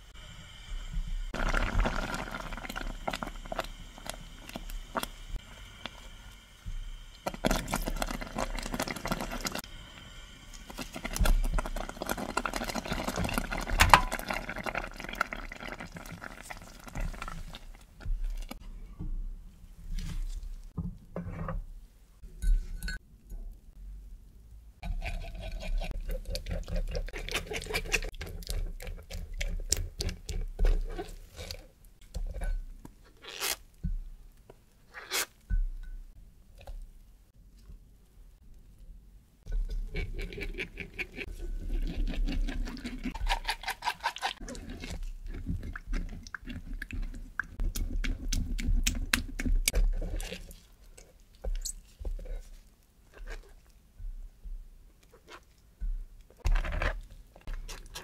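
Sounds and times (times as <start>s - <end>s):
puree bubbling and popping: 10.8s - 17.8s
spatula stirring and scraping: 24.8s - 33.6s, 39.5s - 58.0s.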